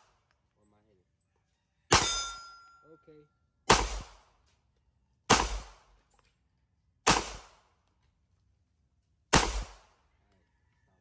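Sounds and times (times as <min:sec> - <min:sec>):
pistol shots: 0:01.9 - 0:02.5, 0:03.6 - 0:04.4, 0:05.3 - 0:06.0, 0:07.0 - 0:07.8, 0:09.3 - 0:10.0.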